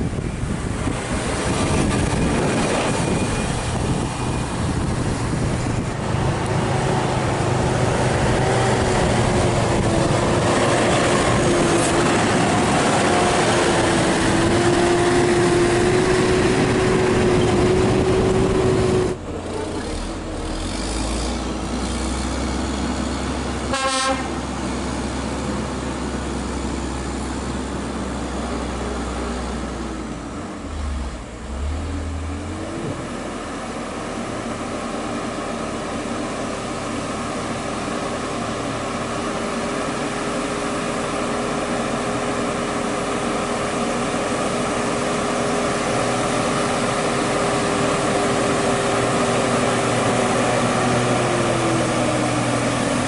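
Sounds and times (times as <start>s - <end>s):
diesel truck labouring uphill: 0.0s - 53.0s
truck horn toot: 23.7s - 24.4s.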